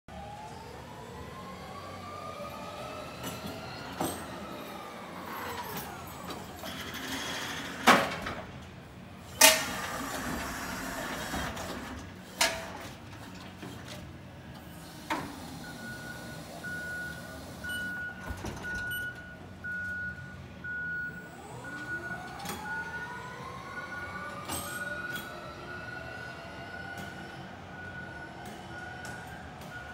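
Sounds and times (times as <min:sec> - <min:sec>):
forklift motor whining: 0:00.2 - 0:07.9, 0:09.4 - 0:12.3, 0:19.7 - 0:29.9
reversing alarm beeping: 0:15.5 - 0:29.9.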